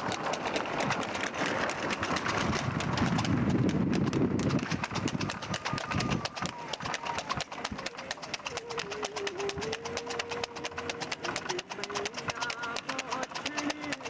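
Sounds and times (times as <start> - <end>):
steady rushing noise: 0.0 - 8.4
horse hooves clip-clopping on pavement: 0.0 - 14.0.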